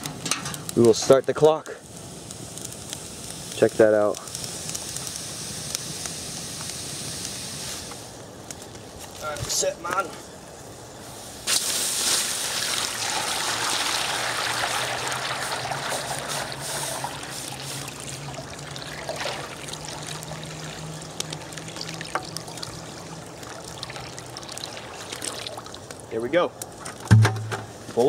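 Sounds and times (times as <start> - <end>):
water pouring into metal bowl: 12.5 - 25.9.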